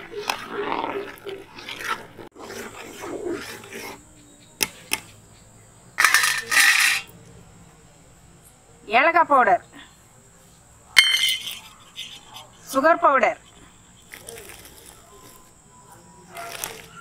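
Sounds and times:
ladle scraping pot: 0.0 - 5.2, 6.0 - 7.1
ladle clinking against pot: 11.0 - 11.6.

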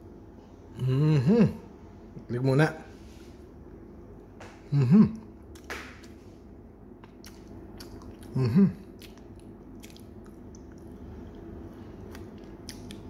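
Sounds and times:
person murmuring: 0.8 - 1.7, 4.7 - 5.3, 8.3 - 8.9.

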